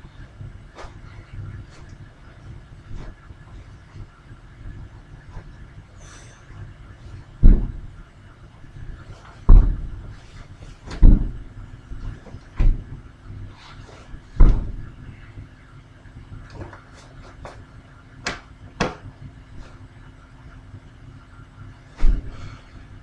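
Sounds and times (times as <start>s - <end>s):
stomps on wooden floor: 7.4s - 7.9s, 9.5s - 10.0s, 10.9s - 11.4s, 12.0s - 13.0s, 14.3s - 14.9s.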